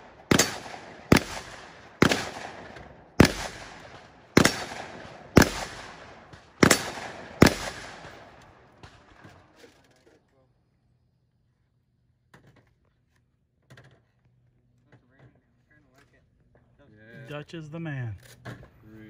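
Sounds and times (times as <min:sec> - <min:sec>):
gunshots echoing: 0:00.0 - 0:09.2.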